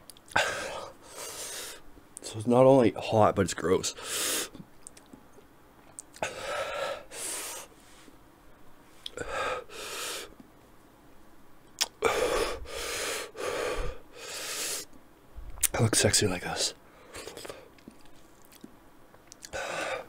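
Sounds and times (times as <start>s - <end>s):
man breathing hard: 0.3s - 1.9s, 4.0s - 4.6s, 6.2s - 8.1s, 9.1s - 10.4s, 12.0s - 14.9s, 19.5s - 20.0s.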